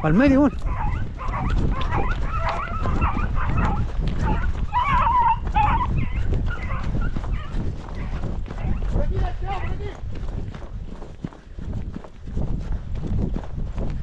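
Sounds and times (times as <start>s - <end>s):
dogs yelping and baying: 0.5s - 8.8s.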